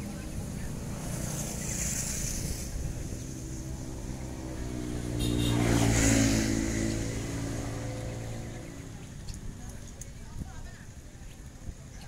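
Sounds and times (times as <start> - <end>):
vehicle engine passing by: 0.0 - 9.3.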